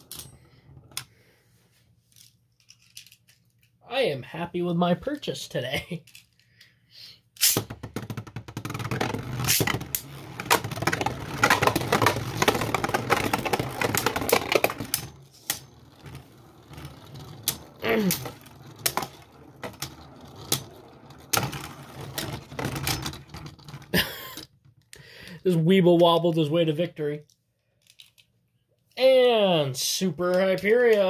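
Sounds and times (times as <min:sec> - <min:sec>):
spinning tops whirring and scraping: 0:07.4 - 0:24.0.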